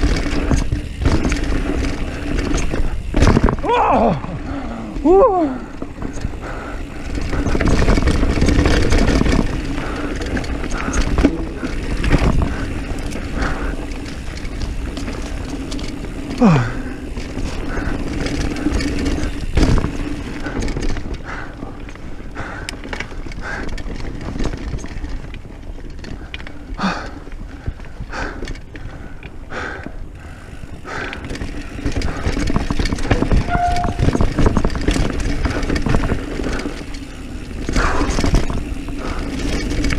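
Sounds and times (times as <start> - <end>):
bike rattling and knocking: 0.0 - 39.9
bike tyres rushing on dirt: 0.0 - 39.9
short falling squeal: 33.4 - 34.0.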